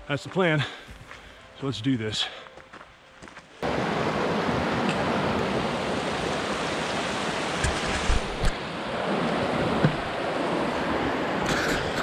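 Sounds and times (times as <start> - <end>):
creek rushing: 3.6 - 12.0.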